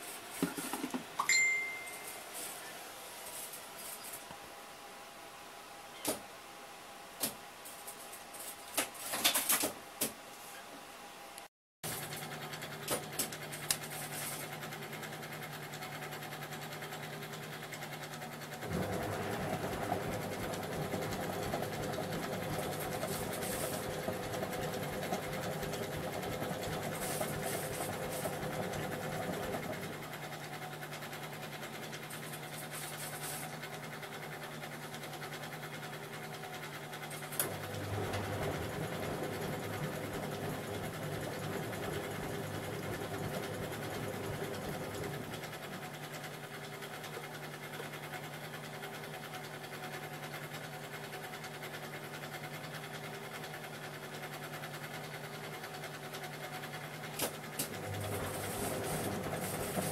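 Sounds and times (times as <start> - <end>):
washing machine drum turning: 18.7 - 29.9, 37.4 - 45.4, 57.7 - 59.9.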